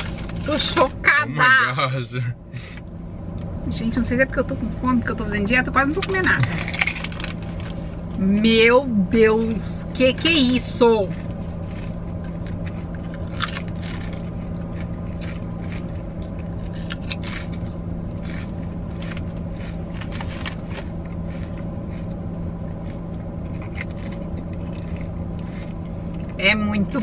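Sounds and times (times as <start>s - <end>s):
low hum of car cabin: 0.0s - 27.0s
potato chips crunching: 6.0s - 7.9s, 10.0s - 26.4s.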